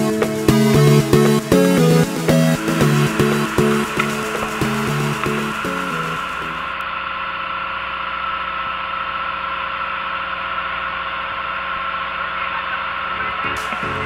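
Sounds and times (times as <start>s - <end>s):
boat engine droning: 0.4s - 7.0s.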